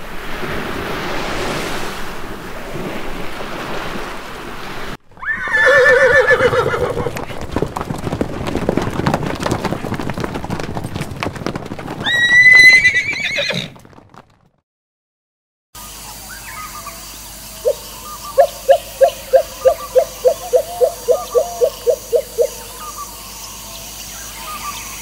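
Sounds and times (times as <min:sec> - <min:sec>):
horses galloping hoofbeats: 0:05.1 - 0:14.6, 0:18.6 - 0:23.0
horse whinny: 0:05.2 - 0:07.2, 0:12.0 - 0:13.8.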